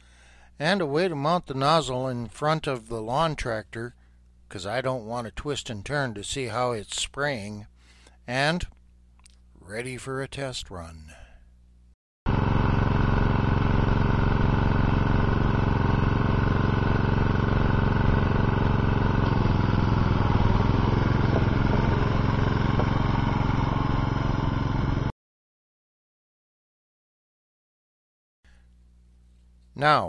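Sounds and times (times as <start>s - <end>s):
lawn tractor engine running: 12.3s - 25.1s.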